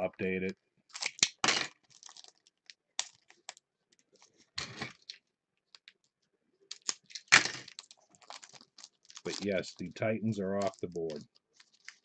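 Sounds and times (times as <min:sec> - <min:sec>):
card pack wrapper rustle: 0:01.8 - 0:06.0, 0:06.7 - 0:12.0.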